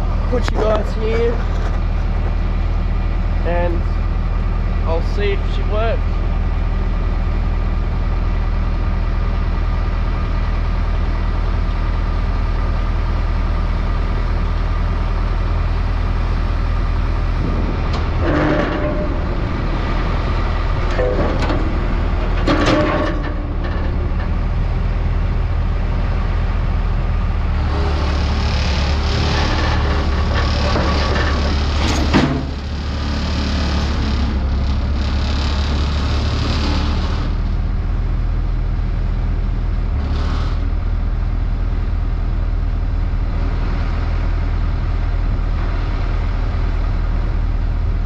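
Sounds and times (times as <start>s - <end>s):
diesel engine running: 0.0s - 48.0s
metal clanks: 17.4s - 25.5s, 28.9s - 32.8s.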